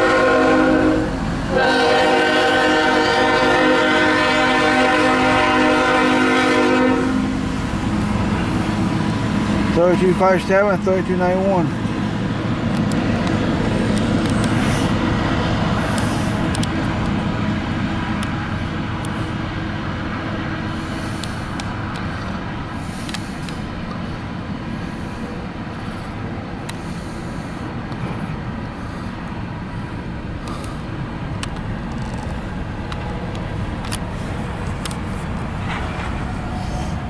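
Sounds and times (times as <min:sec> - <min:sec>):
train wheels rumbling on rails: 0:00.0 - 0:37.0
sharp clicks: 0:12.7 - 0:14.6, 0:15.9 - 0:17.2.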